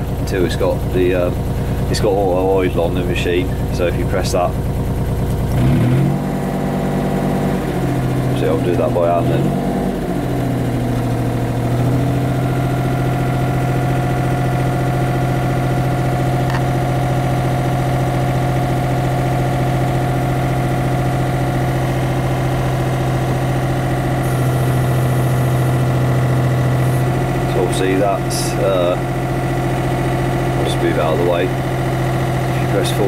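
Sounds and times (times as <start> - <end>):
excavator diesel engine idling: 0.0 - 33.0
sharp click: 16.5 - 16.7.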